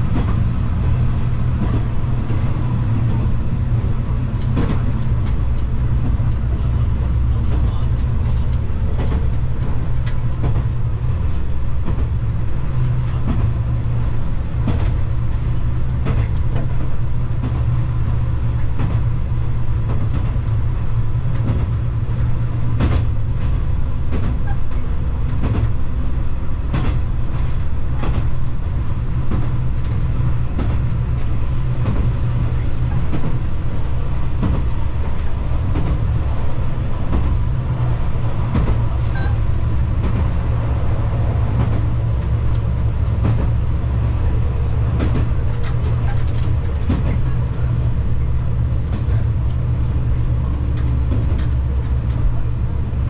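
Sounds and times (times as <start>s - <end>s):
diesel railcar engine drone: 0.0s - 53.0s.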